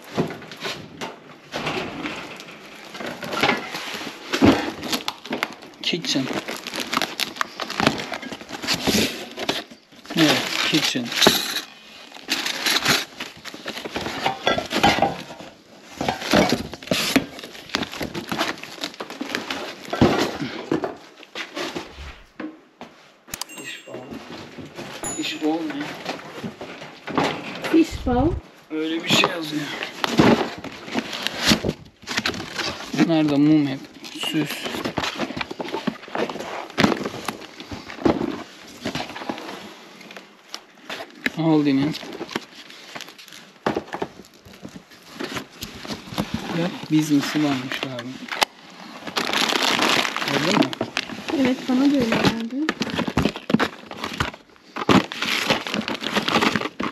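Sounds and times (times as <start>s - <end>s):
cardboard and packaging rustling: 0.0s - 56.9s
bubble wrap crinkling: 3.7s - 10.9s, 16.6s - 19.9s, 47.6s - 56.9s
metal kitchenware clinking: 23.4s - 24.4s, 25.0s - 26.0s.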